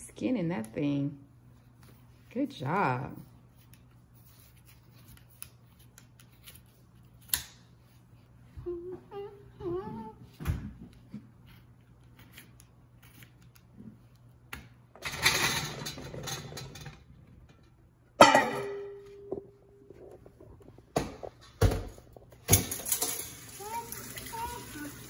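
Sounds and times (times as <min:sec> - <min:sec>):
radishes clattering into colander: 0:15.0 - 0:19.0, 0:22.4 - 0:25.0.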